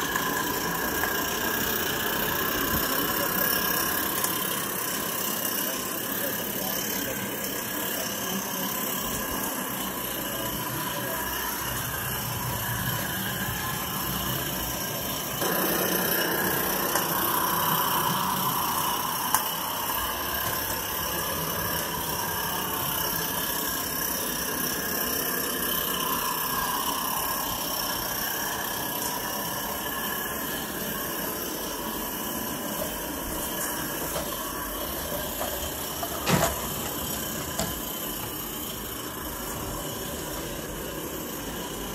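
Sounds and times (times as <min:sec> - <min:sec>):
steam locomotive hissing: 0:00.0 - 0:41.9
wagons rolling over track: 0:32.5 - 0:41.9.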